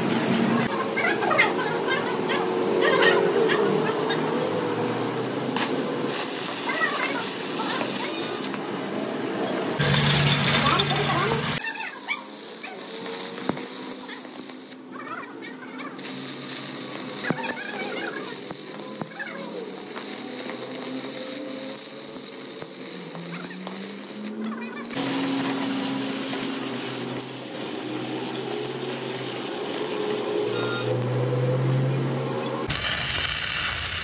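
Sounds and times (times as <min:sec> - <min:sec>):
welding arc crackling and hissing: 0:05.5 - 0:08.7, 0:09.8 - 0:15.0, 0:15.8 - 0:31.0, 0:32.7 - 0:34.0
spatter pops: 0:16.0 - 0:20.9.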